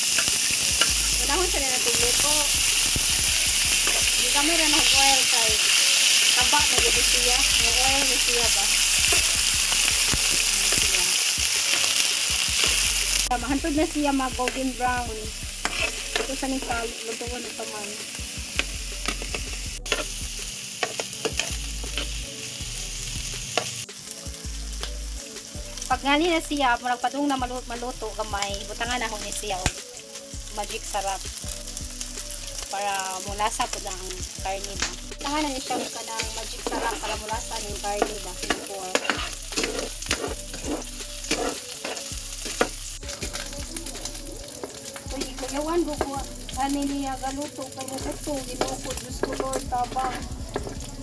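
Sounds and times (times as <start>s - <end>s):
spatula scraping and knocking pan: 0.0s - 5.8s, 6.4s - 17.6s, 18.2s - 22.3s, 34.1s - 46.9s, 48.0s - 51.0s
meat sizzling in oil: 0.0s - 51.0s
metal spatula scraping pan: 15.5s - 16.8s, 34.8s - 43.9s.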